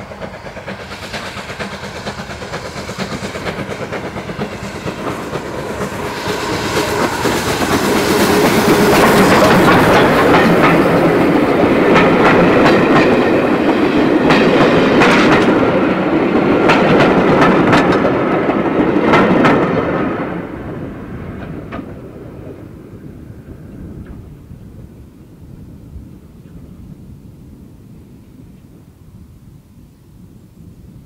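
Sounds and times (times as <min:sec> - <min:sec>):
steam train passing: 0:00.0 - 0:31.0
wheels clicking over rail joints: 0:00.1 - 0:20.0.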